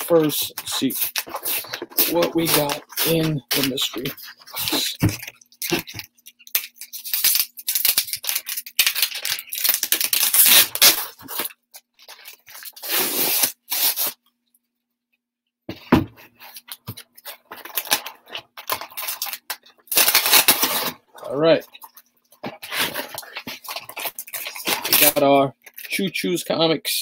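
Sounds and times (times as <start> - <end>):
cardboard ripping: 0.1 - 6.0, 6.6 - 11.6, 12.2 - 14.2, 17.6 - 21.0, 22.4 - 25.2.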